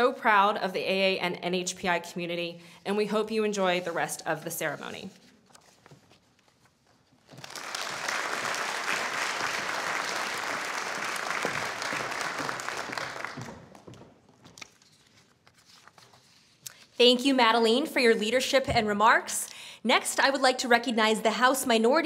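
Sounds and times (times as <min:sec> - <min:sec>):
audience applauding: 0:07.3 - 0:13.9.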